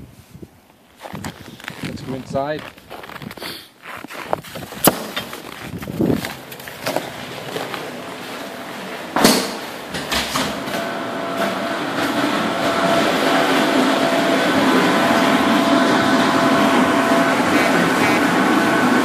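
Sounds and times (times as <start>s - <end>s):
generator mechanical hum: 0.0s - 19.0s
constant whining tones: 10.7s - 19.0s.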